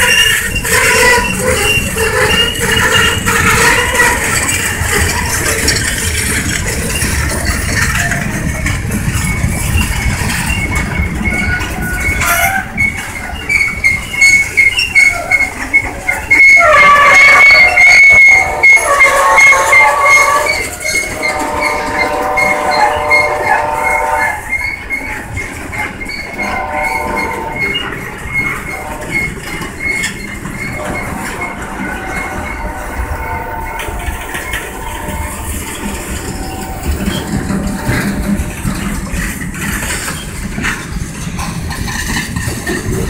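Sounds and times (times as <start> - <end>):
freight train rumbling past: 0.0 - 43.0
high wheel squeal: 0.0 - 43.0.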